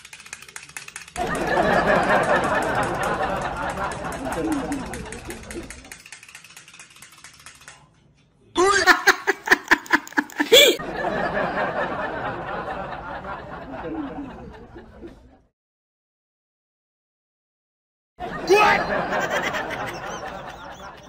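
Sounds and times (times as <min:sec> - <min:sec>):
person laughing: 0:08.6 - 0:10.8, 0:18.4 - 0:21.0.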